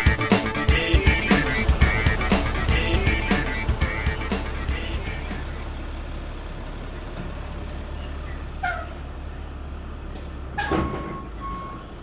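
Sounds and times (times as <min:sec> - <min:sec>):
sharp falling-pitch sounds: 0:00.0 - 0:05.7
truck engine rumbling: 0:00.0 - 0:12.0.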